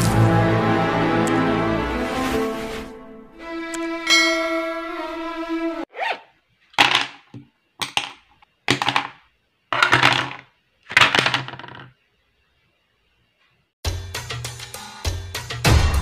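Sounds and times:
art supplies set down on wooden table: 6.8 - 9.2, 9.8 - 11.9.

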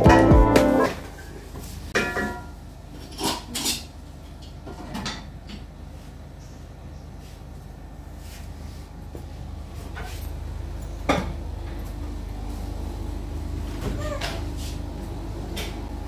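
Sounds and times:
background music: 0.0 - 1.0.

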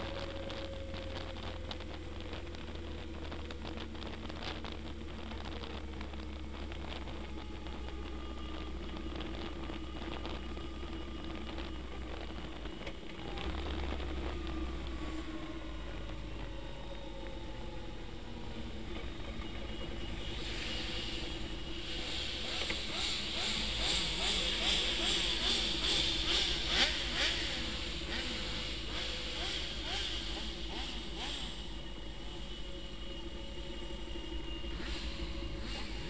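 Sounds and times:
motorcycle engine running: 0.0 - 36.0
wind and road noise hiss: 0.0 - 36.0.

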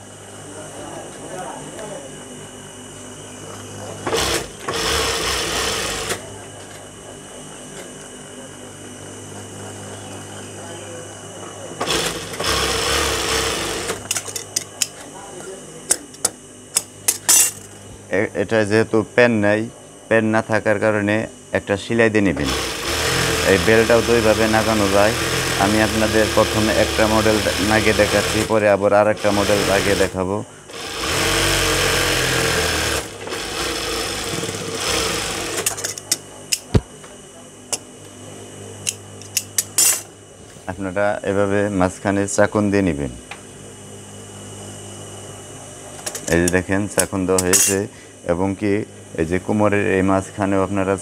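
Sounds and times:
sewing machine stitching: 4.1 - 6.2, 11.8 - 14.0, 22.4 - 28.6, 29.2 - 30.1, 30.7 - 35.8.

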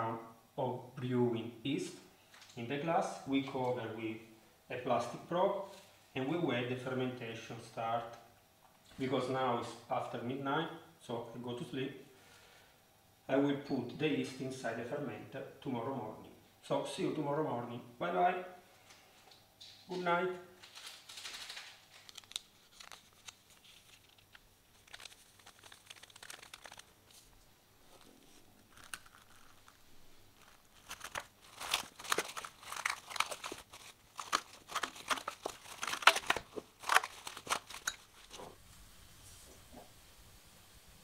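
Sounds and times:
plastic cling film crinkling: 20.6 - 38.6.

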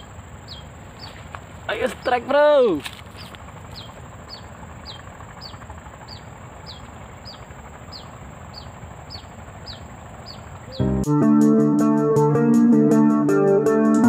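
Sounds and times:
bird whistling: 0.0 - 1.2, 3.2 - 11.1
high-pitched whine: 3.6 - 14.0.

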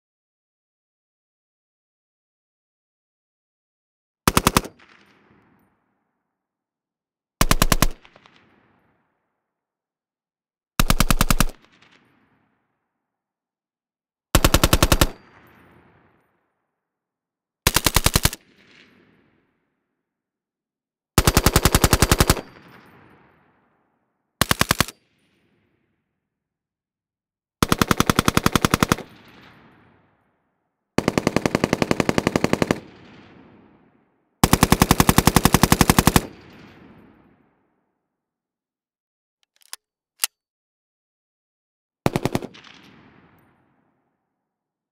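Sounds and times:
rifle firing automatic bursts: 4.3 - 4.9, 7.4 - 8.3, 10.8 - 11.9, 14.3 - 15.5, 17.7 - 18.6, 21.2 - 22.8, 24.4 - 25.0, 27.6 - 29.6, 31.0 - 33.3, 34.4 - 36.6, 42.1 - 42.8.

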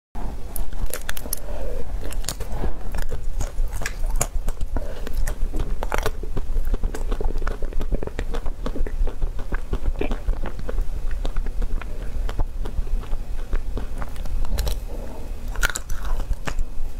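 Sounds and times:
chocolate shell crunching: 0.6 - 14.9, 15.5 - 16.6.

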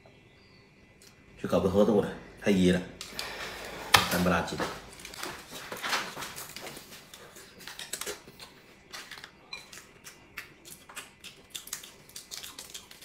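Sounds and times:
man chewing: 6.4 - 13.0.

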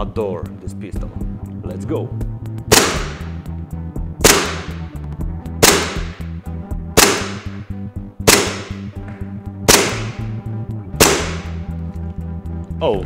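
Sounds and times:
airsoft pistol shots: 2.7 - 3.4, 4.2 - 4.9, 5.6 - 6.3, 7.0 - 8.9, 9.7 - 10.4, 11.0 - 11.6.

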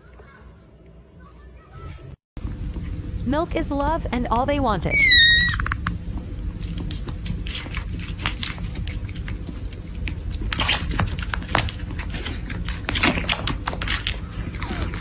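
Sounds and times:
steady low hum: 2.4 - 15.0
kittens suckling clicks and smacks: 6.6 - 15.0.

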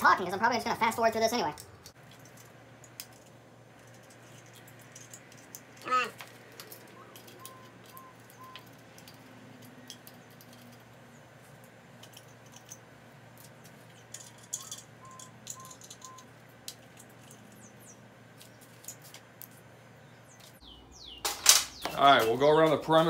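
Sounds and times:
metal washers clicking and clinking: 1.3 - 19.7.

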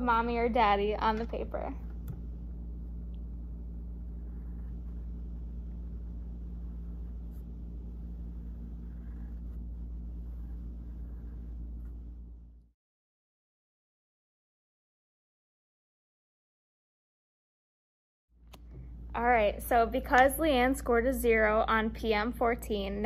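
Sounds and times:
low room hum: 0.0 - 12.8, 18.4 - 23.0
pencil scratching on paper: 4.1 - 12.1.

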